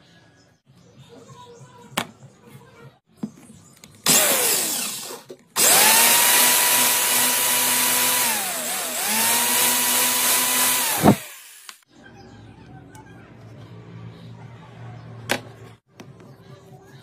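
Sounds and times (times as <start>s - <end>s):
electric drill boring wood: 4.1s - 11.8s.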